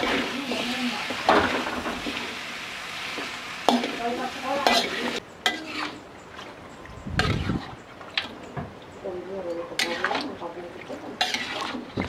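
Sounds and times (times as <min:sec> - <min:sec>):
food sizzling: 0:00.0 - 0:06.0, 0:09.8 - 0:12.0
metal spatula scraping wok: 0:00.0 - 0:06.0, 0:07.2 - 0:07.7, 0:09.6 - 0:10.4, 0:11.1 - 0:12.0.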